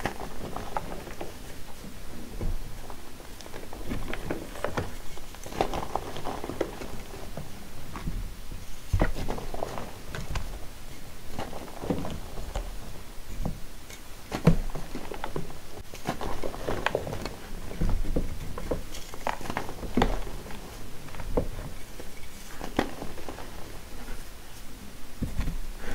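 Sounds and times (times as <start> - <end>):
hands crushing powdery blocks: 0.0 - 25.9
soft thuds: 25.2 - 25.9.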